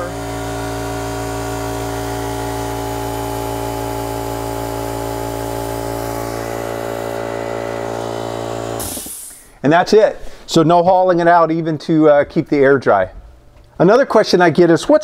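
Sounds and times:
compressed air hissing through hose: 1.6 - 9.6.

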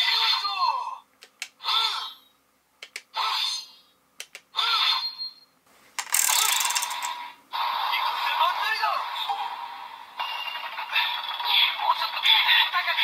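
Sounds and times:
toy trigger clicks: 6.0 - 7.2.

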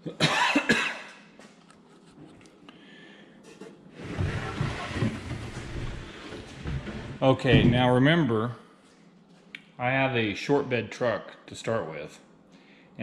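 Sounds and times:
person coughing: 0.0 - 1.2
wooden drawer scraping: 3.6 - 7.9.

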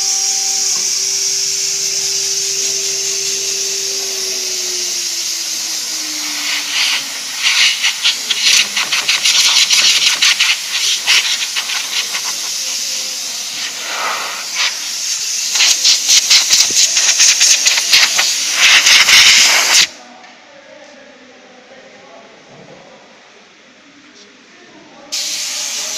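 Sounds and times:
air blow gun hissing blasts: 0.0 - 20.0, 25.2 - 25.9.

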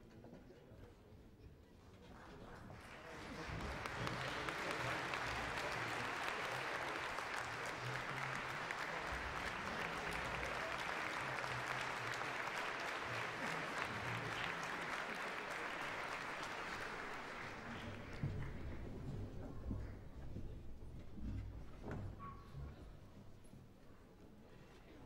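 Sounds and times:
audience applauding: 2.6 - 19.4.

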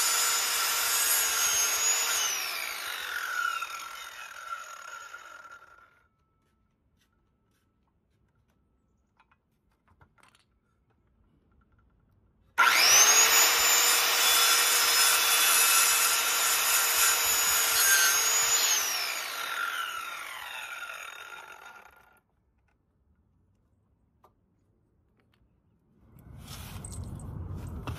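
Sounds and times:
power saw cutting wood: 0.0 - 6.0, 12.6 - 22.2.

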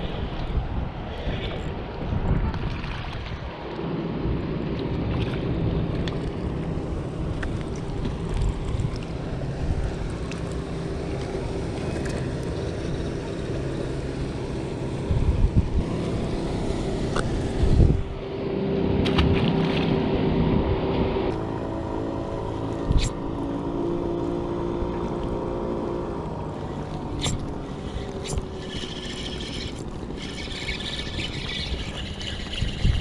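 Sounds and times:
wind buffeting microphone: 0.0 - 18.4, 26.3 - 33.0
boat motor running: 1.2 - 33.0.

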